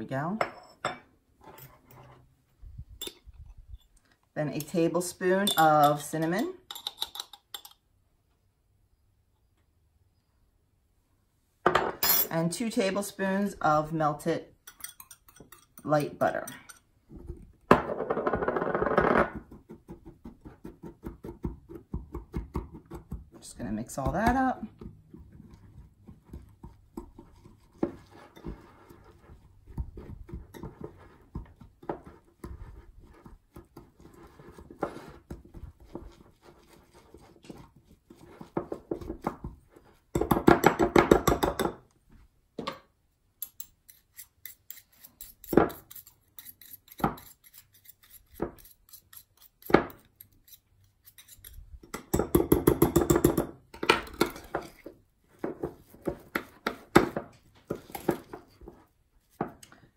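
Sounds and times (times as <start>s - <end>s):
fork stirring in glass bowl: 14.6s - 16.9s, 24.7s - 40.0s, 43.4s - 52.1s.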